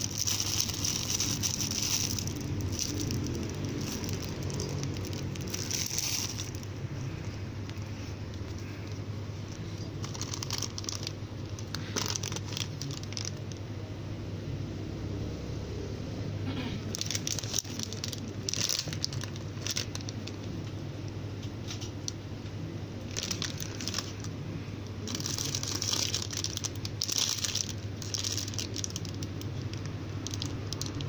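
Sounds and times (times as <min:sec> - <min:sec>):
plastic bags crinkling: 0:00.0 - 0:13.6, 0:16.9 - 0:20.6, 0:23.0 - 0:24.4, 0:25.0 - 0:31.0.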